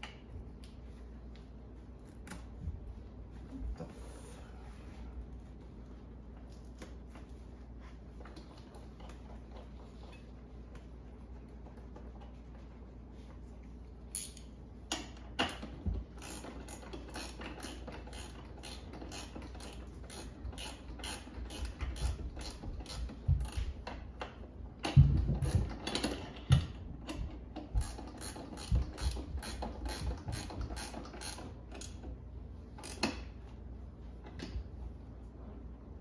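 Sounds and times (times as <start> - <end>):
hand ratchet clicking: 14.1 - 24.0, 27.1 - 32.0, 32.8 - 33.3.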